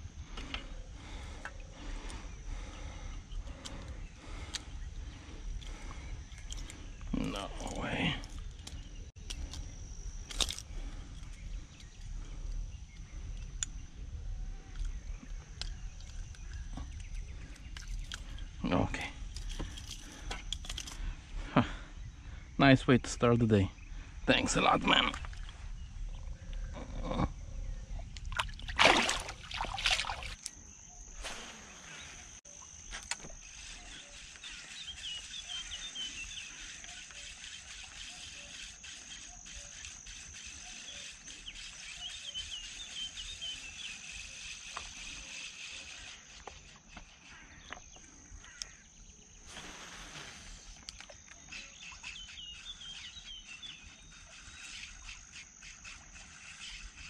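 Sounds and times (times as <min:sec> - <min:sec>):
high-pitched insect drone: 0:00.0 - 0:57.0
insect chirping: 0:00.0 - 0:57.0
water splashing and sloshing: 0:28.2 - 0:30.5.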